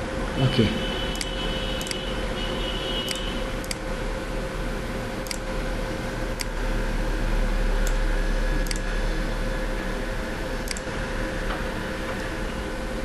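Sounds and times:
steady low hum and hiss: 0:00.0 - 0:13.0
computer mouse clicking: 0:01.1 - 0:02.0, 0:03.1 - 0:03.8, 0:05.2 - 0:05.5, 0:06.4 - 0:06.6, 0:08.6 - 0:08.9, 0:10.6 - 0:10.9.

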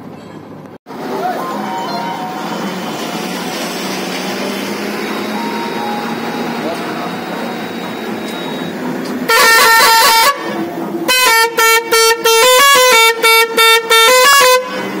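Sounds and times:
air horn playing notes: 0:09.3 - 0:15.0.

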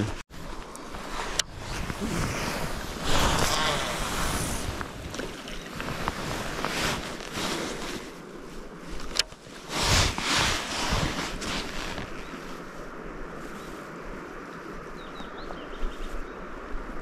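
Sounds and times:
wind gusting on microphone: 0:00.0 - 0:17.0.

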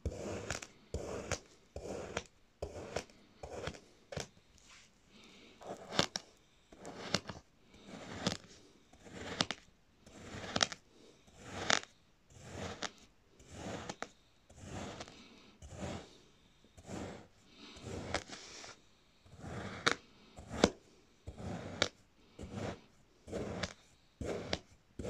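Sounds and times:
knife slicing through sand: 0:00.0 - 0:03.8, 0:11.4 - 0:14.0, 0:14.6 - 0:15.1, 0:15.7 - 0:16.1, 0:16.8 - 0:18.8, 0:19.4 - 0:24.7.

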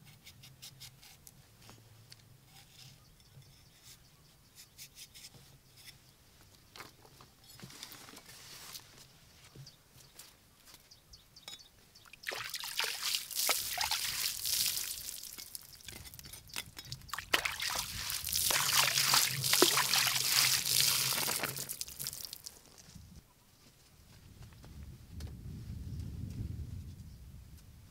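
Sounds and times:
water splashing and sloshing: 0:12.1 - 0:16.2, 0:16.9 - 0:22.6.

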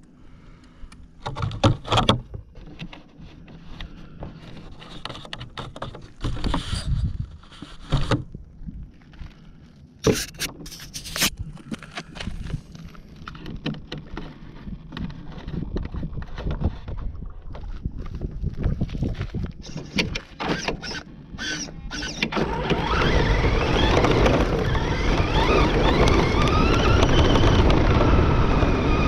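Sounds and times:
toy truck clattering over bumps: 0:19.8 - 0:29.0.

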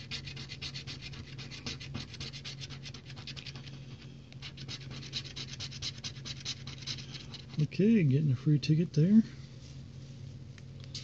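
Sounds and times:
lottery ticket scratching: 0:04.4 - 0:07.9.

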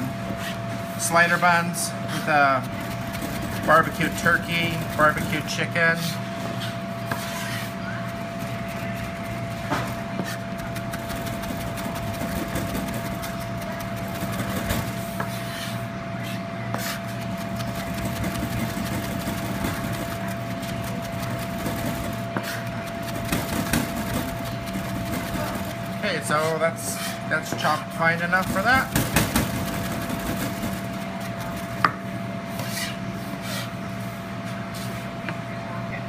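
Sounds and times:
knife chopping on plastic board: 0:09.0 - 0:15.4, 0:16.8 - 0:25.8, 0:28.4 - 0:32.0.

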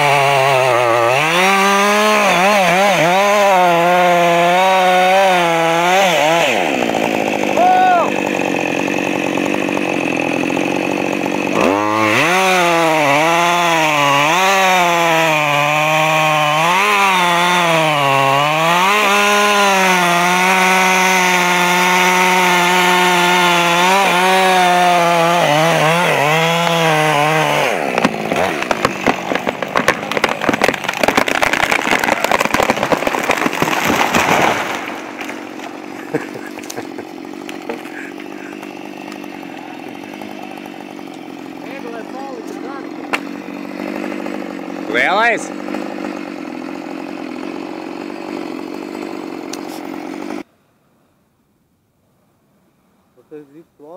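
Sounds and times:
chainsaw cutting wood: 0:00.0 - 0:50.5
tree crashing down: 0:18.5 - 0:41.7.

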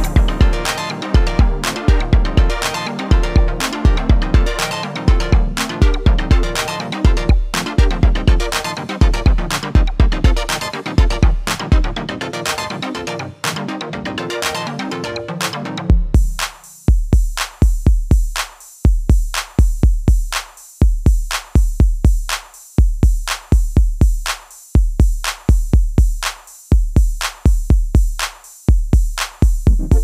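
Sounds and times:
deep bass kick: 0:00.0 - 0:04.5, 0:05.1 - 0:06.5, 0:07.1 - 0:11.9, 0:29.7 - 0:30.0
drum machine beat: 0:00.0 - 0:30.0.

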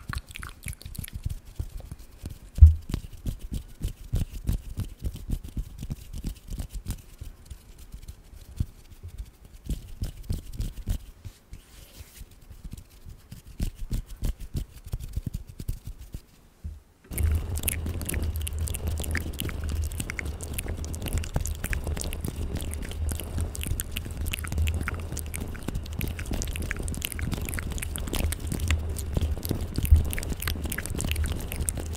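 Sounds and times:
wet mouth sounds: 0:00.0 - 0:04.6, 0:17.1 - 0:31.9
microphone scratching: 0:02.6 - 0:03.0, 0:17.1 - 0:31.9
fingers tapping on microphone: 0:02.6 - 0:04.9.

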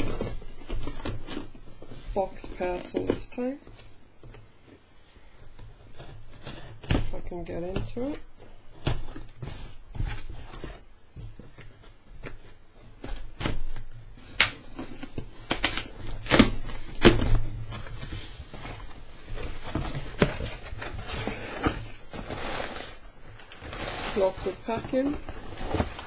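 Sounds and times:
cardboard flaps scraping: 0:00.0 - 0:26.0
packing tape ripping: 0:14.4 - 0:17.4.

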